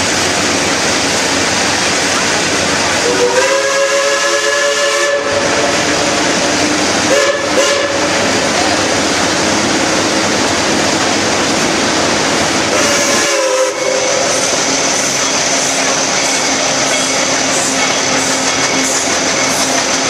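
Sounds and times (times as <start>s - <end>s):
train running noise: 0.0s - 20.0s
locomotive whistle: 3.0s - 6.4s, 7.0s - 8.9s, 12.7s - 14.5s.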